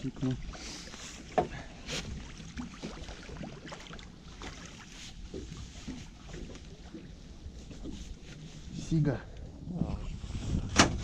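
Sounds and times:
water splashing and dripping: 1.3 - 8.4.

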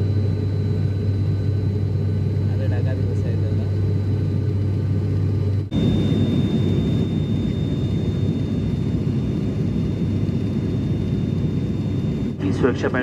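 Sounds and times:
aircraft cabin engine rumble: 0.0 - 13.0
thin steady high tone: 5.7 - 12.8.

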